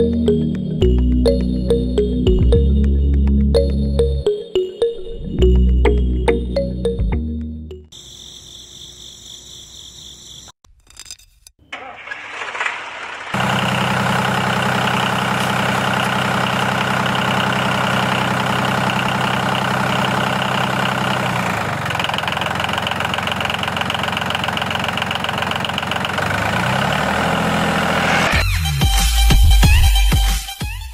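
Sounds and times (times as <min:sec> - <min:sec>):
tractor engine running: 0:11.6 - 0:28.4.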